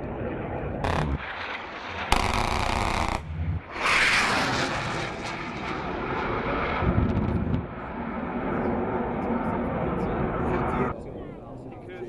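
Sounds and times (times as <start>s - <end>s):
jet engine roar: 0.0s - 11.7s
jet cannon burst: 0.8s - 7.8s.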